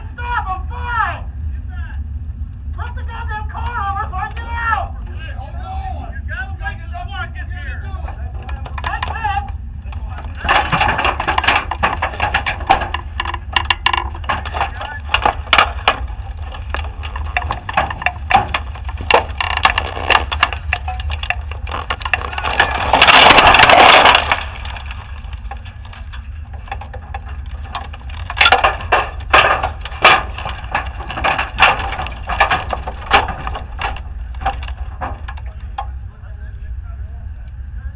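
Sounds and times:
steady low rumble: 0.0 - 37.9
clicks knocks and rattles: 8.0 - 36.0.

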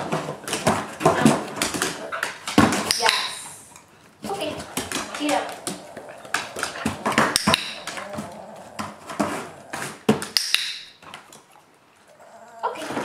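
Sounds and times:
dog claws on hardwood floor: 0.0 - 11.6
training clicker snapping: 2.9 - 3.4, 10.3 - 10.9.

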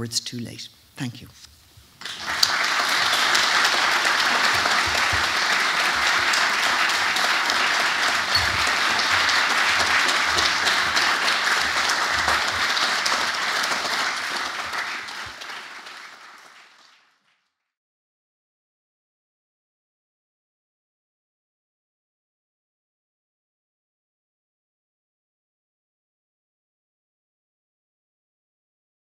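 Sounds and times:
audience applauding: 2.0 - 17.2.

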